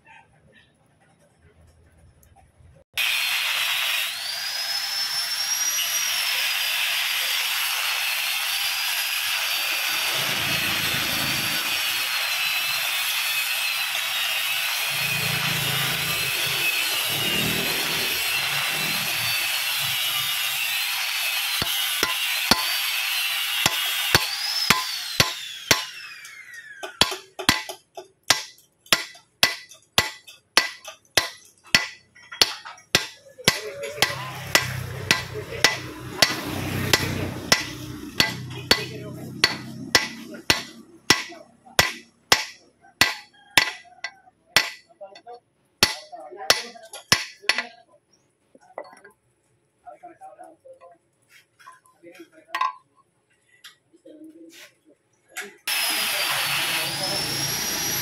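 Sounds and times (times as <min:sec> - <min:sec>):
power tool whining: 0:03.0 - 0:31.4, 0:32.4 - 0:42.0, 0:55.7 - 0:58.0
hammer blows on steel: 0:20.5 - 0:43.8.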